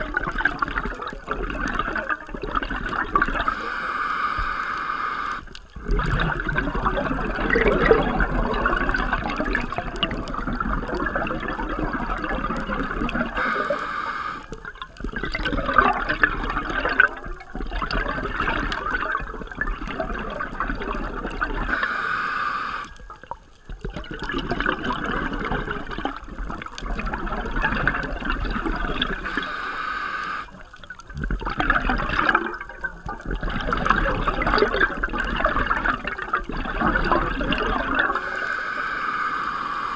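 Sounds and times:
bubbling exhalation underwater: 0.0s - 3.6s, 5.8s - 13.7s, 14.6s - 21.8s, 23.7s - 29.5s, 30.5s - 38.3s
regulator hissing inhalation: 3.4s - 5.5s, 13.3s - 14.6s, 21.7s - 23.0s, 29.2s - 30.6s, 38.1s - 39.9s.

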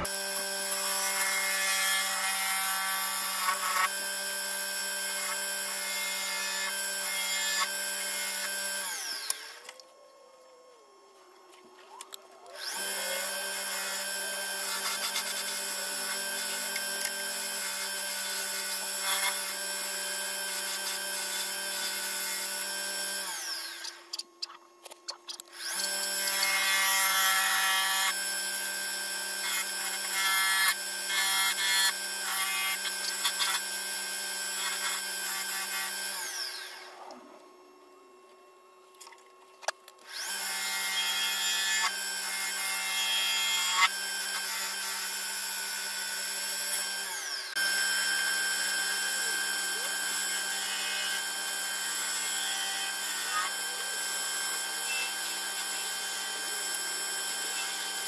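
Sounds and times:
gouge cutting wood: 0.0s - 9.5s, 12.5s - 24.0s, 29.3s - 33.7s, 34.4s - 37.1s
wood lathe humming: 0.0s - 9.8s, 12.3s - 24.0s, 25.5s - 37.4s, 40.1s - 58.0s.

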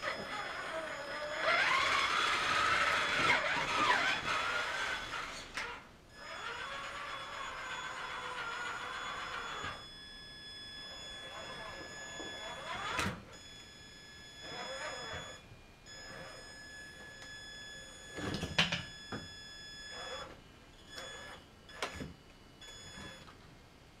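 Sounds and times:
electric motor whining: 0.0s - 9.8s, 14.4s - 15.4s.

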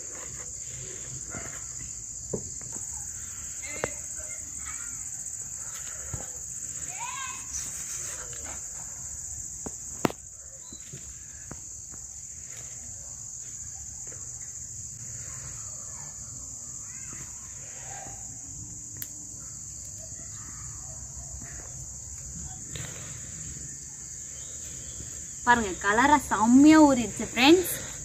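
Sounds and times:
insects chirring: 0.0s - 28.0s.

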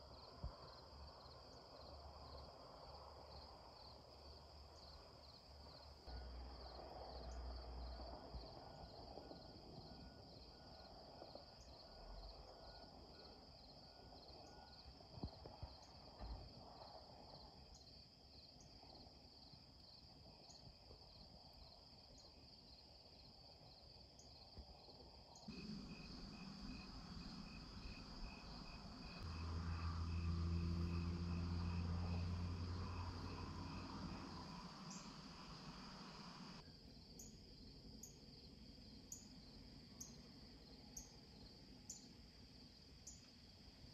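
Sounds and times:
insects chirping: 25.4s - 43.3s
low steady hum: 25.5s - 36.6s.

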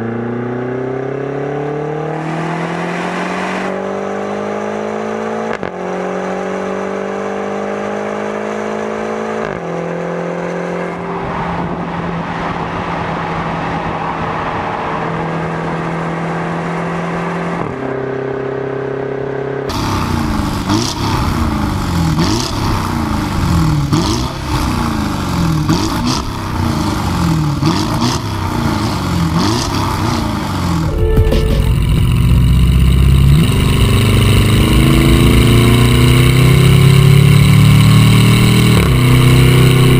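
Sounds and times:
car engine accelerating hard: 0.0s - 39.9s
car engine revving with cracks: 0.3s - 10.7s, 19.7s - 39.9s.

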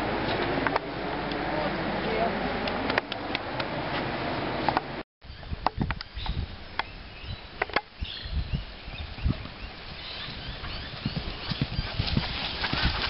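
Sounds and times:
horse hoofbeats on grass: 9.2s - 13.0s.

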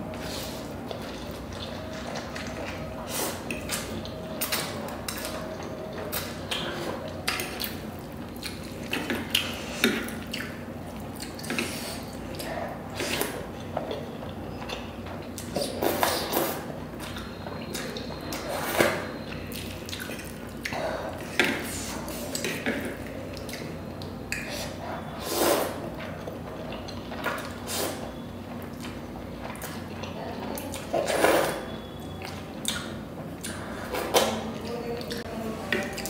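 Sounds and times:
chewing and mouth smacks: 3.4s - 14.0s, 19.2s - 20.8s, 32.1s - 33.7s
person slurping noodles: 24.5s - 25.8s.

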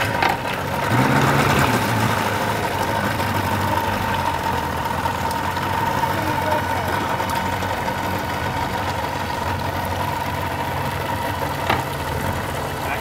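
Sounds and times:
outboard motor running: 0.0s - 13.0s.

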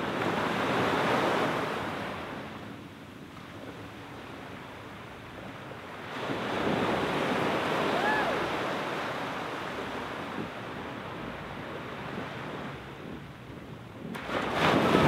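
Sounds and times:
small waves breaking on sand: 3.3s - 15.0s.

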